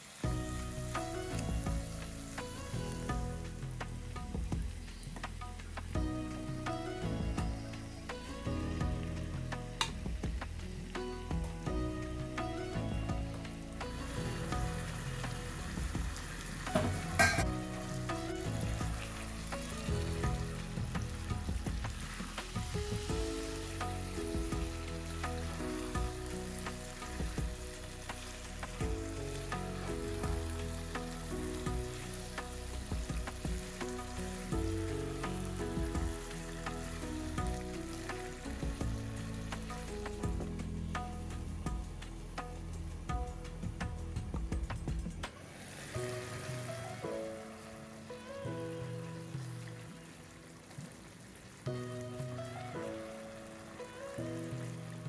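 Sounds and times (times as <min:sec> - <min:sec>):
chicken sizzling in a pan: 0:00.0 - 0:06.0, 0:13.5 - 0:41.8
background music: 0:00.0 - 0:55.0.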